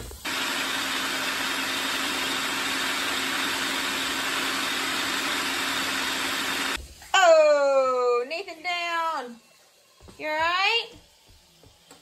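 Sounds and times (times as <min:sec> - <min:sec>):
food processor whirring: 0:00.0 - 0:06.8.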